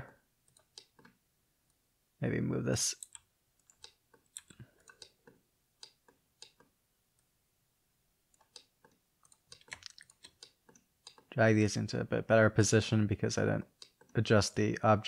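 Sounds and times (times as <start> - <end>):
mouse and keyboard clicks: 0.5 - 1.2, 3.0 - 6.7, 8.3 - 11.3.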